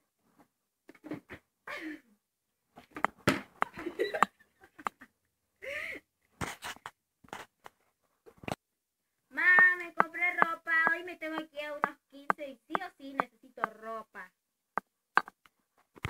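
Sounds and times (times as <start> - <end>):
girls' voices and breath: 5.6 - 6.1.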